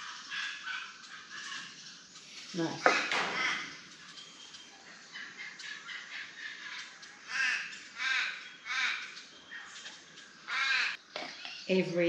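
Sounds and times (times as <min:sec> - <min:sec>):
crow cawing: 0:06.2 - 0:09.2, 0:10.5 - 0:11.0.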